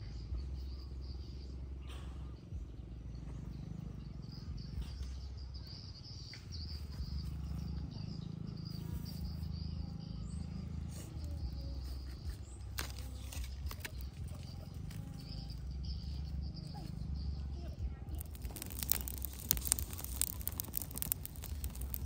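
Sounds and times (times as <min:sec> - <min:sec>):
insects chirring: 0:06.8 - 0:22.0
faint clicks: 0:18.1 - 0:22.0.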